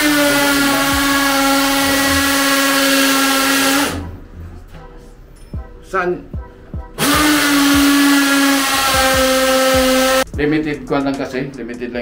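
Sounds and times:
electric drill boring into tile: 0.0 - 4.0, 7.0 - 10.2.

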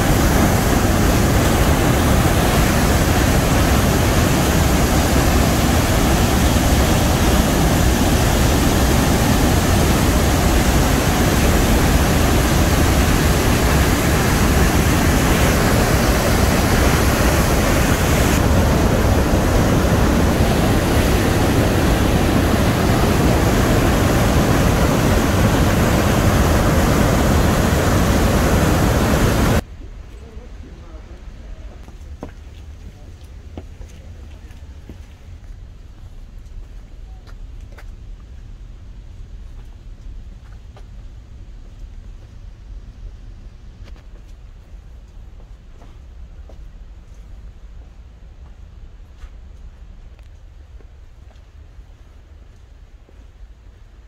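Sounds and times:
waterfall rushing: 0.0 - 29.6.

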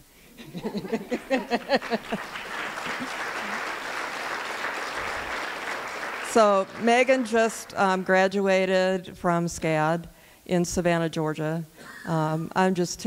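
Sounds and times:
audience applauding: 0.6 - 8.0.

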